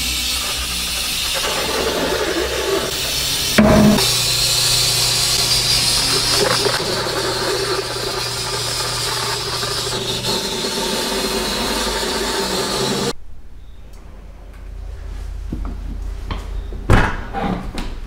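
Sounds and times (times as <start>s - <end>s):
low hum: 2.1s - 16.9s.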